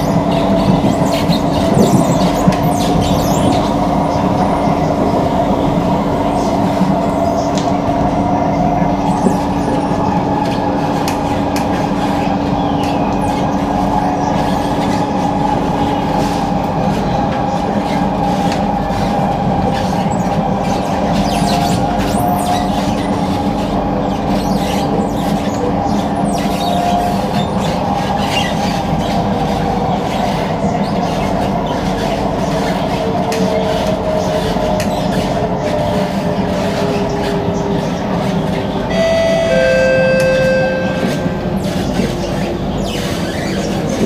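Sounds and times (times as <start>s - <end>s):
train rumble: 0.0s - 44.0s
high ringing tone: 38.9s - 41.8s.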